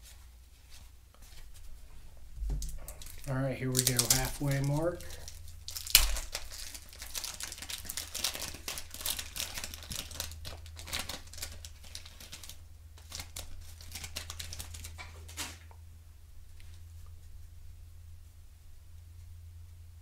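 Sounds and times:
wax-paper wrapper tearing: 2.6 - 15.6
wrapper crinkling: 2.6 - 15.7.

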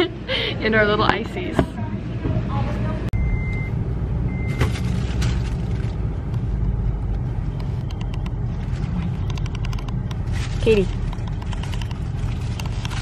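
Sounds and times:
low rumble inside car: 1.4 - 13.0
short electronic beeps: 3.2 - 4.6.

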